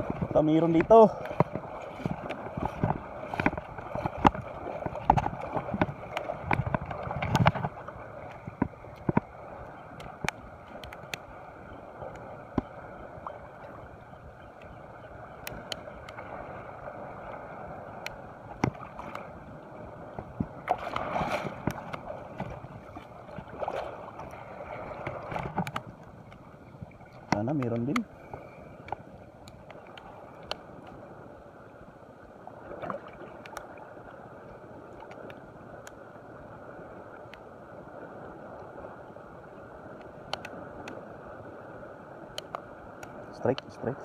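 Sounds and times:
sea water washing on shore: 0.0s - 44.0s.

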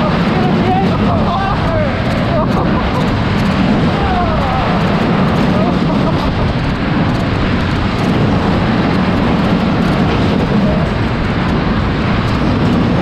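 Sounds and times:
funfair ride rumbling: 0.0s - 13.0s
wind buffeting microphone: 0.0s - 13.0s.

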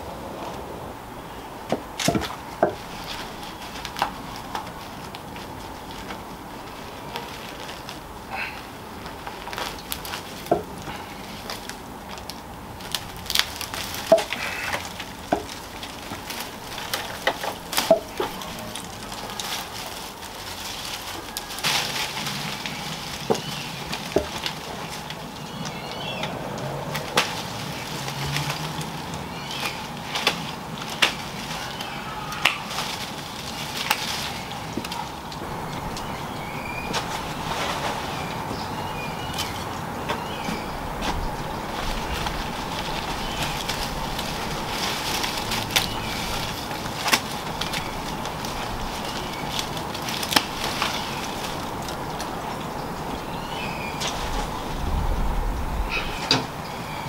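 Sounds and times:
leaves rustling: 0.0s - 57.0s
ivy stems cracking and snapping: 1.7s - 56.6s.

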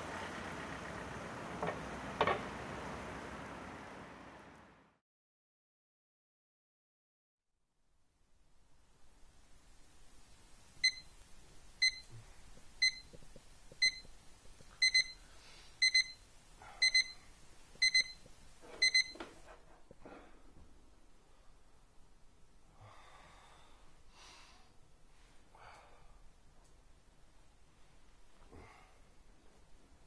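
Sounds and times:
alarm clock beeping: 10.8s - 11.0s, 11.8s - 12.0s, 12.8s - 13.1s, 13.8s - 14.0s, 14.8s - 15.2s, 15.8s - 16.2s, 16.8s - 17.2s, 17.8s - 18.2s, 18.8s - 19.2s.

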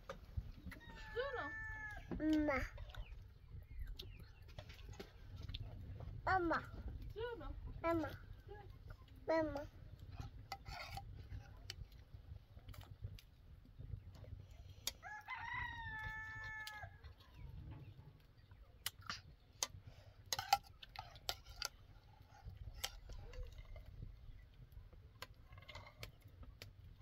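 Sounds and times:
rooster crowing: 0.7s - 2.1s, 15.0s - 16.9s.

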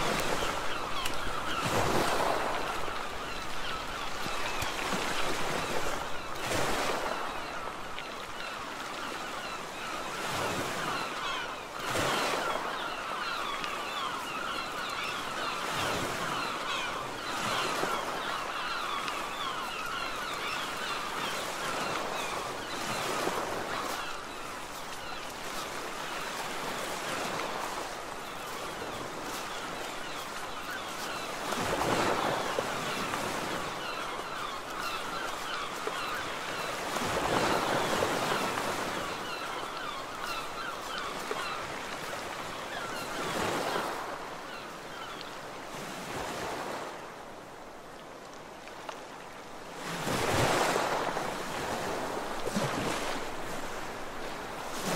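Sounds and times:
sea surf washing over rocks: 0.0s - 8.4s, 49.3s - 54.9s
wind: 0.0s - 54.9s.

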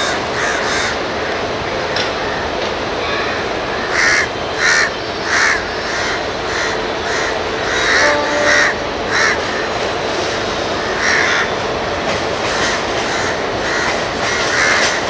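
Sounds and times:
crows cawing: 0.0s - 1.0s, 3.8s - 9.7s, 10.9s - 11.5s, 12.5s - 15.0s.

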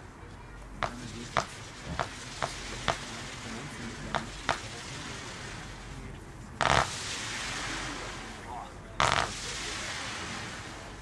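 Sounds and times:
firework pops: 0.8s - 4.9s, 6.6s - 7.8s, 9.0s - 10.2s
hiss of burning fireworks: 0.8s - 11.0s.

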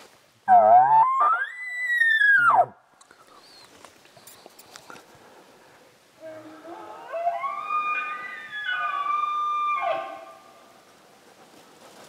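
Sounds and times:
elk bugling: 0.5s - 2.7s.

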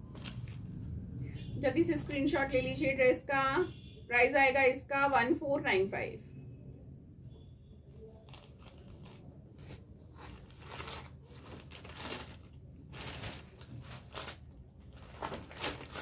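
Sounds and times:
plastic packet crinkling: 10.1s - 16.0s.

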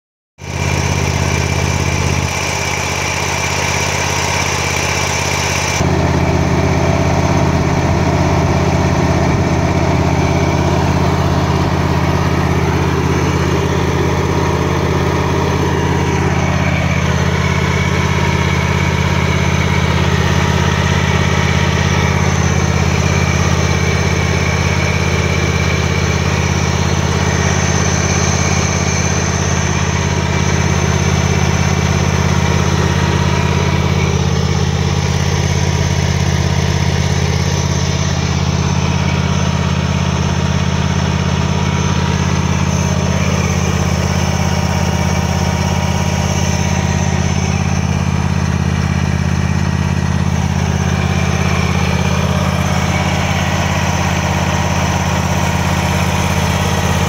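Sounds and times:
mower engine idling: 0.4s - 57.0s.

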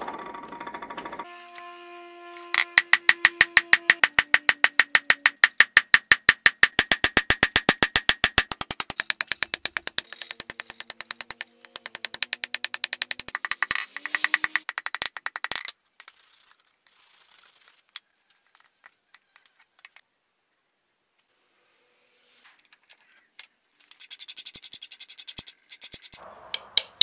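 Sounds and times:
hammer striking steel on anvil: 2.5s - 8.4s, 26.5s - 27.0s.

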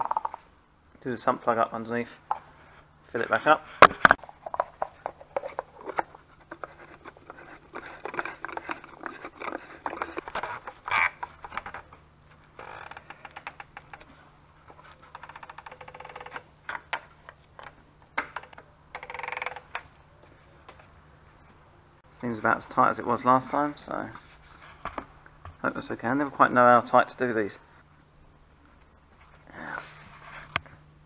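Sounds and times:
plastic cap scraping and clicking: 3.8s - 11.8s.

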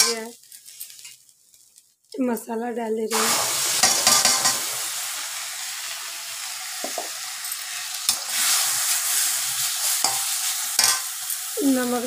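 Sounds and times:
metal spatula scraping a pan: 0.0s - 1.8s, 3.1s - 4.7s, 6.9s - 11.6s
onions sizzling in hot oil: 0.0s - 12.0s.

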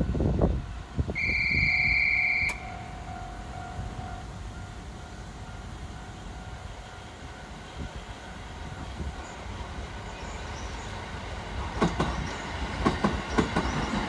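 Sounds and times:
low rumble of trains: 0.0s - 14.0s
trilling whistle blast: 1.2s - 3.0s
crossing alarm ringing: 1.2s - 8.5s.

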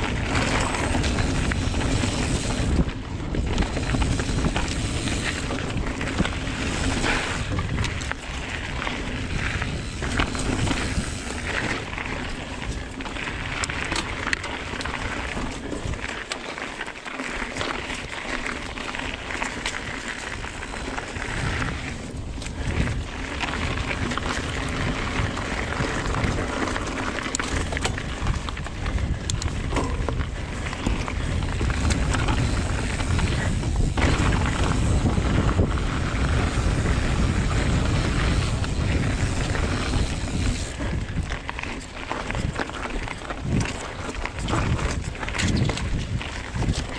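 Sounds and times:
wind buffeting microphone: 0.0s - 16.2s, 17.6s - 46.9s
bike clicks and knocks: 0.0s - 46.9s
bike tyre noise: 0.0s - 46.9s.

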